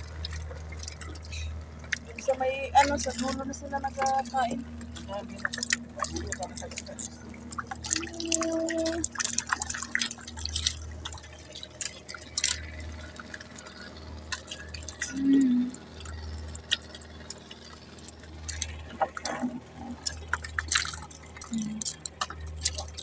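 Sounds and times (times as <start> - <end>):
low hum: 0.0 - 23.0
small water drips and ticks: 0.0 - 23.0
water lapping against boat: 0.0 - 23.0.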